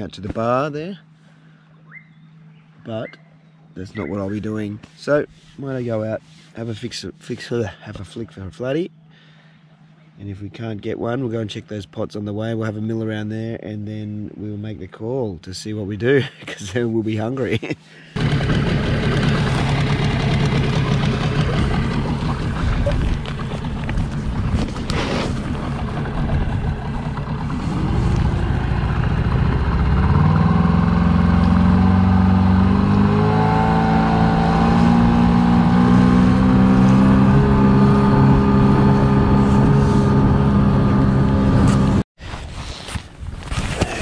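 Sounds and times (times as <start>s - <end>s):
wind: 0.0s - 44.0s
outboard motor running: 18.0s - 42.0s.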